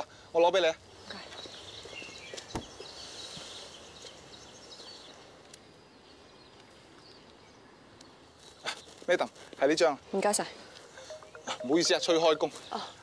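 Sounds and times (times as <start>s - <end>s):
faint high chirps: 10.9s - 13.0s.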